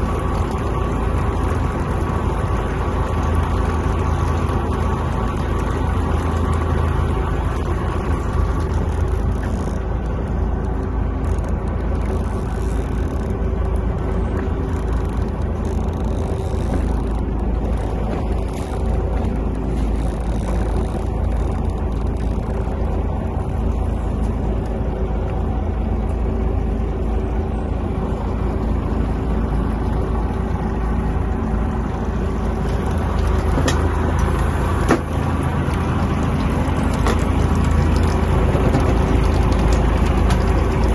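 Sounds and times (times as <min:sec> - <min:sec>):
boat engine idling: 0:00.0 - 0:40.9.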